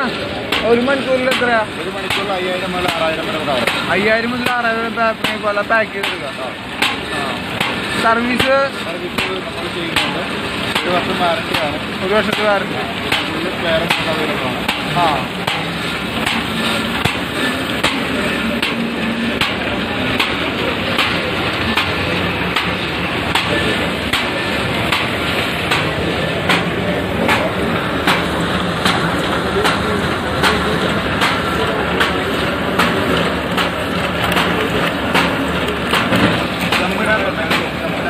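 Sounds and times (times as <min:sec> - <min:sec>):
machine mechanical clatter: 0:00.0 - 0:38.0
sharp regular clack: 0:00.4 - 0:04.6, 0:05.2 - 0:37.8.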